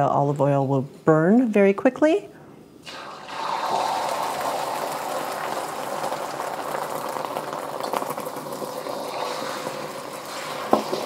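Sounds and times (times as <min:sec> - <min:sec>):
eggs sizzling in hot oil: 0:02.8 - 0:11.0.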